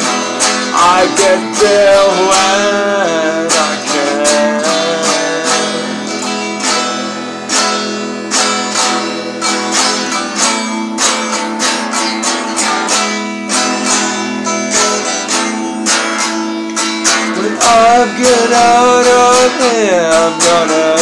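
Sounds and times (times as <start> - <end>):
acoustic guitar strumming: 0.0 - 21.0.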